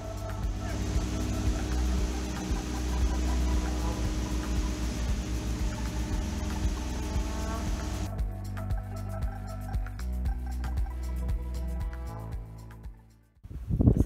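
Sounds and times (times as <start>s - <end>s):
hiss: 0.0s - 8.1s
low engine rumble: 0.0s - 12.5s.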